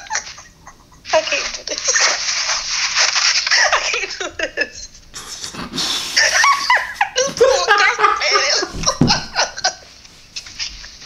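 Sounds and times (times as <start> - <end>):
person making breathy hissing noises: 5.2 - 6.6.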